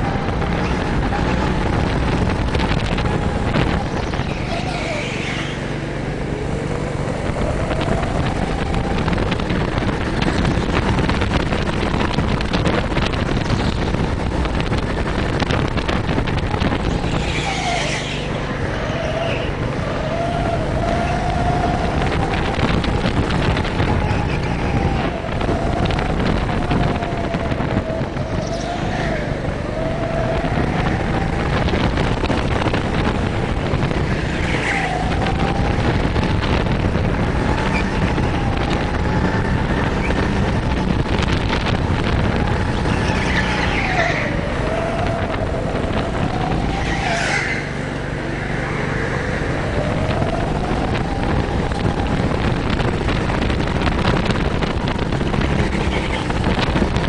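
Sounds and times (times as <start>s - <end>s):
go-kart engine running hard: 0.0s - 57.0s
high tyre squeals: 3.6s - 6.0s, 16.8s - 22.2s, 23.8s - 25.8s, 34.1s - 35.2s, 42.8s - 50.2s.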